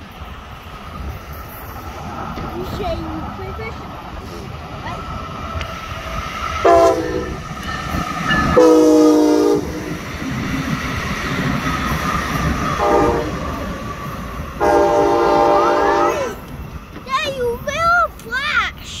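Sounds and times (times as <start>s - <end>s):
train rumble and wheel clatter: 0.0s - 19.0s
train horn blasts: 6.6s - 7.4s, 8.5s - 9.9s, 12.8s - 13.4s, 14.6s - 16.4s.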